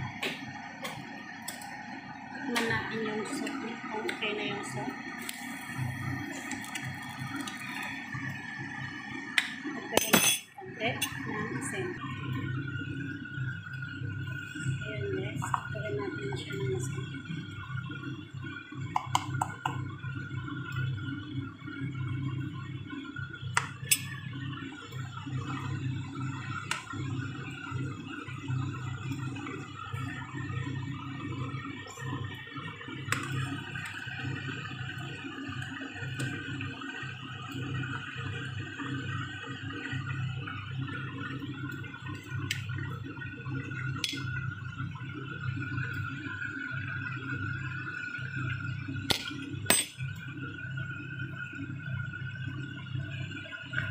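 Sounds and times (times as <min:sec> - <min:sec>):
constant hum: 0:00.0 - 0:53.9
soup bubbling in pot: 0:00.0 - 0:53.9
spoon knocking on metal pot: 0:18.9 - 0:19.6.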